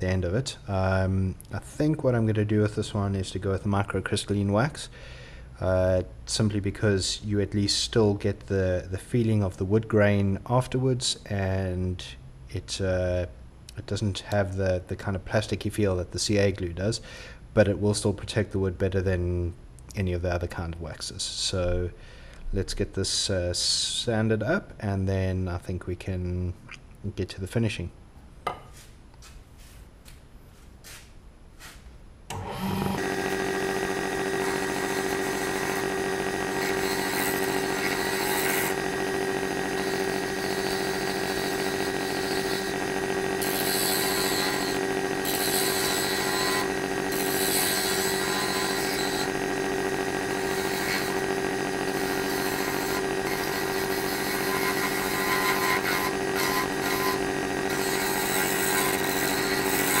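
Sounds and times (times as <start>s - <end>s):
turning tool scraping wood: 31.6s - 60.0s
lathe motor whine: 32.3s - 60.0s.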